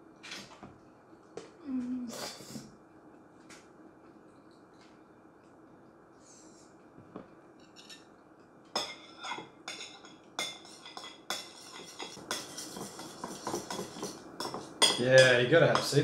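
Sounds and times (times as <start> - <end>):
spoon clinking in bowl: 8.8 - 16.0.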